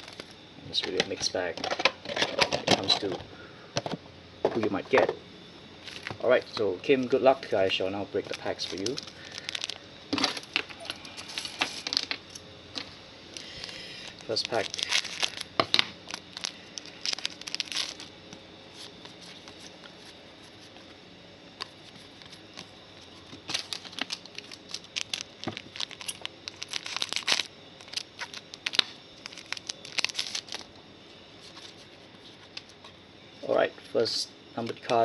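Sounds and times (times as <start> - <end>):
cards rustling and sliding: 8.2 - 12.2, 12.8 - 18.1
wrapper tearing and crinkling: 8.2 - 12.2, 13.5 - 18.1, 23.4 - 30.7.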